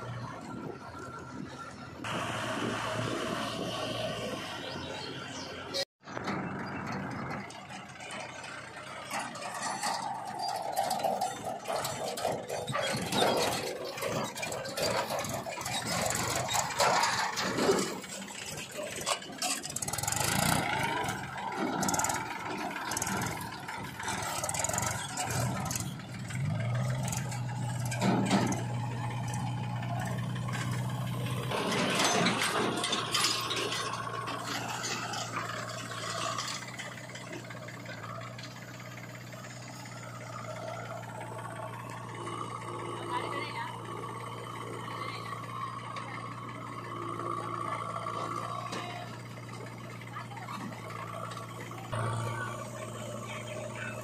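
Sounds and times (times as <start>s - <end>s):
backhoe loader diesel engine: 0.0s - 54.0s
tractor diesel engine running: 0.0s - 54.0s
trolley knocking and rattling: 6.1s - 42.1s.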